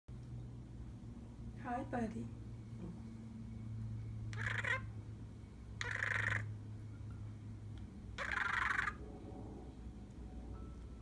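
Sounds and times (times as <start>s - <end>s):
budgerigar chattering: 4.3s - 5.0s, 5.8s - 6.5s, 8.2s - 9.0s.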